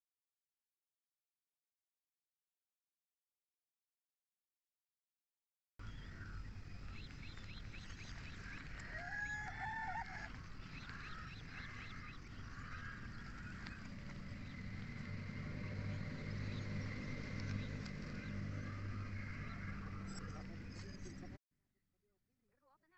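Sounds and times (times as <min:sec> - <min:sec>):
steady low hum: 0:05.8 - 0:09.6, 0:10.3 - 0:21.4
small birds chirping: 0:05.8 - 0:21.4
rooster crowing: 0:08.4 - 0:13.9.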